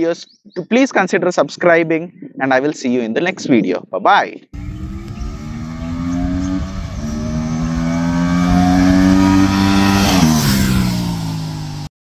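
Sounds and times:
motorcycle accelerating past: 4.6 - 11.9.

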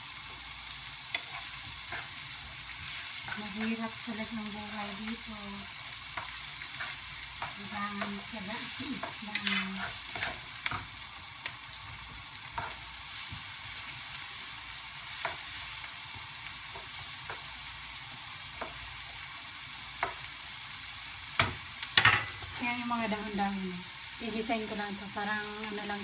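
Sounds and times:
garlic and onion sizzling in oil: 0.0 - 26.0
spatula stirring and tapping pan: 1.0 - 5.3, 5.9 - 13.5, 15.1 - 15.6, 16.6 - 17.6, 18.5 - 19.2, 20.0 - 20.3.

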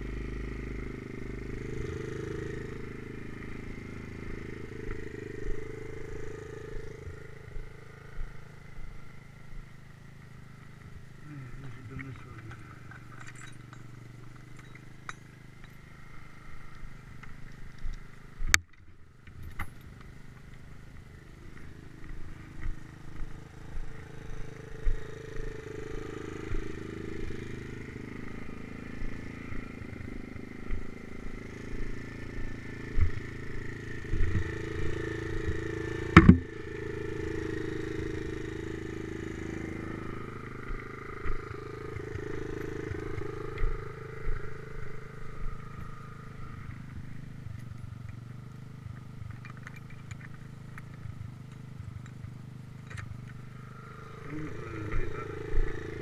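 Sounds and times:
small motorcycle engine running: 0.0 - 56.0
bike knocks and rattles: 35.4 - 36.6
heavy thump: 36.2 - 36.5.

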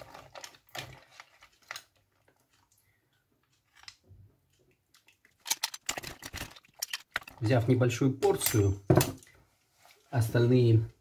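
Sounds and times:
mussel shells clicking: 4.6 - 7.4.

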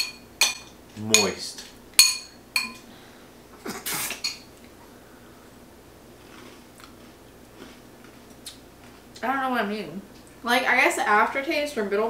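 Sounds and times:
spoon clinking glass bowl: 0.0 - 1.4, 2.0 - 2.8, 4.2 - 4.5.

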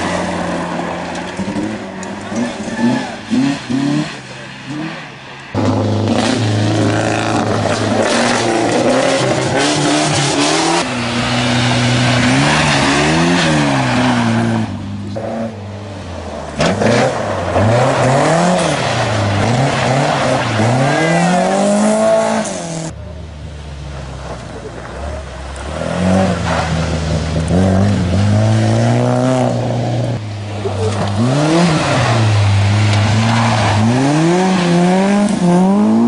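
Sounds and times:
rally car engines revving: 0.0 - 36.0.

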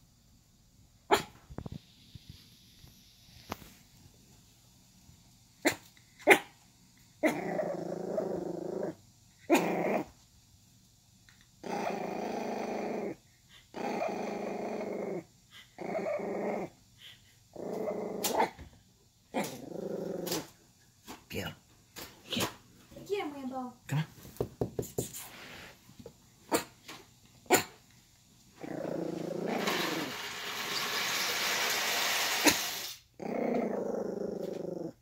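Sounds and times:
puppy growling: 7.2 - 10.2, 11.6 - 16.8, 17.5 - 18.6, 19.3 - 20.6, 28.6 - 35.0.

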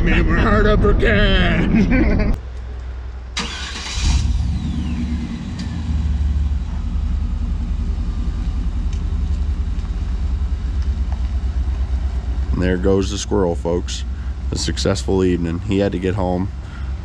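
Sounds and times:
pickup truck exhaust rumble: 4.0 - 17.0.

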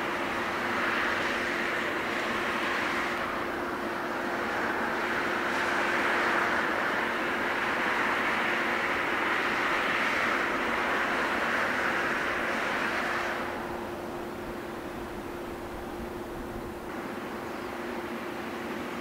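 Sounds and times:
distant jet engines roaring: 0.0 - 19.0.

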